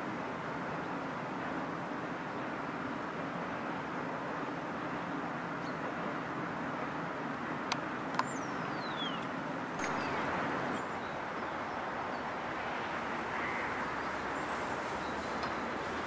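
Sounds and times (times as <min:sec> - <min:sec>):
outdoor background noise: 0:00.0 - 0:16.0
bird calls: 0:08.2 - 0:12.3.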